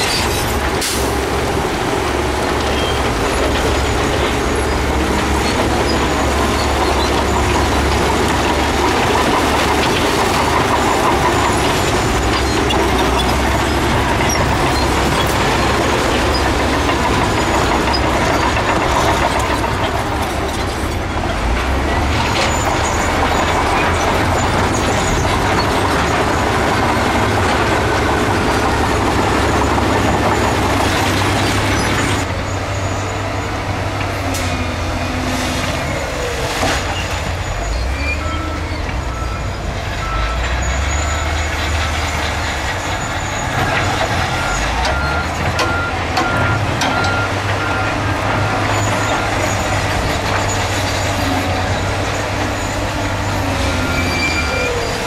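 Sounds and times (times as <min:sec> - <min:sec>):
heavy diesel machinery running: 0:00.0 - 0:55.0
reversing alarm beeping: 0:42.8 - 0:55.0.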